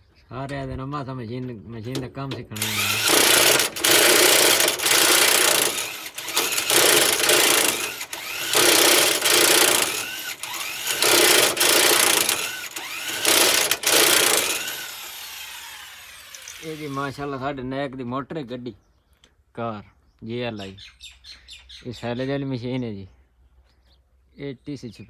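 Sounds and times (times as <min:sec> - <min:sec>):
power tool motor whining: 0:02.6 - 0:17.3.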